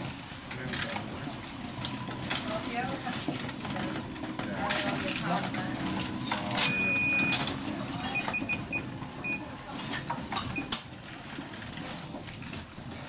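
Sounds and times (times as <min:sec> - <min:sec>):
murmur of crowded shop: 0:00.0 - 0:13.0
shop till beeping: 0:01.0 - 0:11.0.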